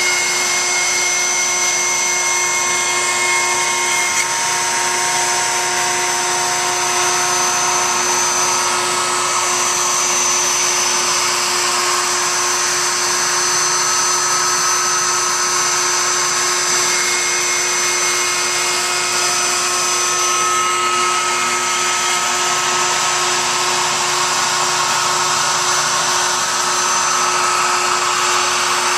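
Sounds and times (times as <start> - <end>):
router motor cutting wood: 0.0 - 28.9.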